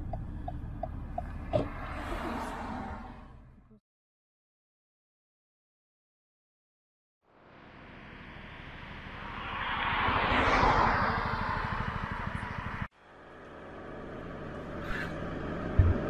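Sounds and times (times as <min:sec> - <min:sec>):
steady road noise: 0:00.0 - 0:03.8, 0:07.2 - 0:16.0
car passing by: 0:01.4 - 0:03.4, 0:07.6 - 0:12.9.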